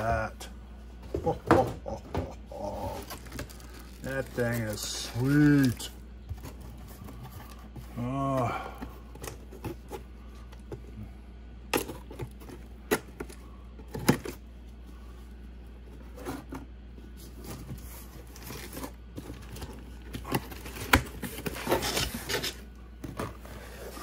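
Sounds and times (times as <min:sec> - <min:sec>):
cardboard scraping and rustling: 0:02.5 - 0:10.8, 0:15.8 - 0:24.0.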